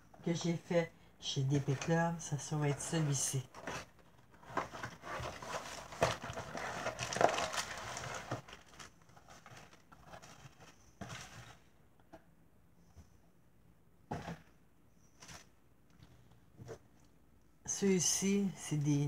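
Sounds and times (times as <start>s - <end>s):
cardboard and plastic packaging rustling: 1.4s - 11.8s, 14.1s - 17.0s.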